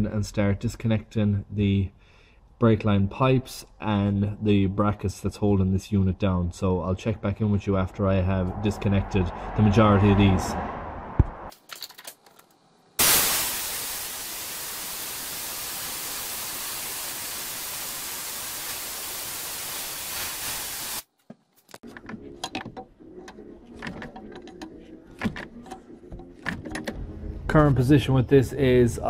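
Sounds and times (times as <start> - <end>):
vacuum fluid extractor hissing: 13.0 - 21.0.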